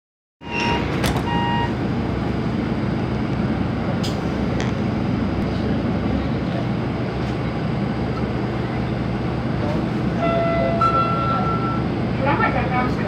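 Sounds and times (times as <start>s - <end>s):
short electronic beeps: 0.4s - 1.8s
monorail car rumble and hum: 0.4s - 13.0s.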